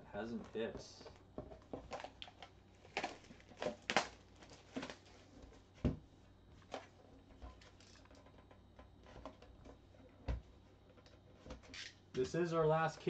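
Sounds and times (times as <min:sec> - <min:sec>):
shrink wrap crackling: 0:01.8 - 0:05.2.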